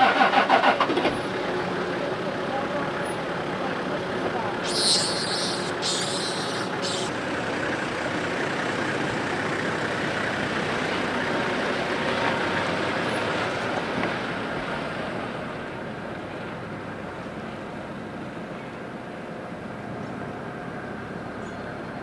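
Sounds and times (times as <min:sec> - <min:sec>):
short high hisses: 0:04.6 - 0:07.2.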